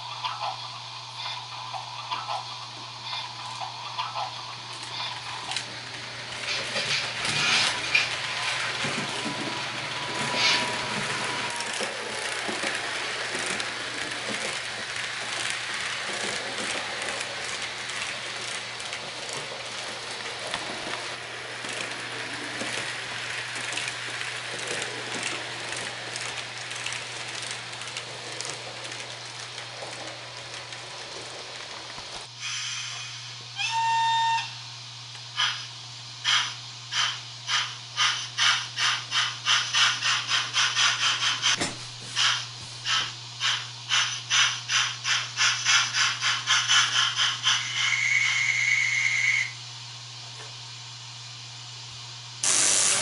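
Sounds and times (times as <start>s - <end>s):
model train rattling on track: 3.1s - 32.3s, 36.2s - 49.4s.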